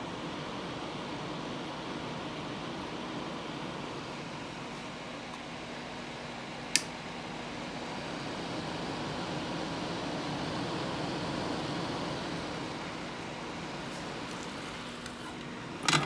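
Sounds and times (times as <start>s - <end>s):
hot-air gun fan hiss: 0.0s - 16.0s
sharp click: 6.7s - 6.9s.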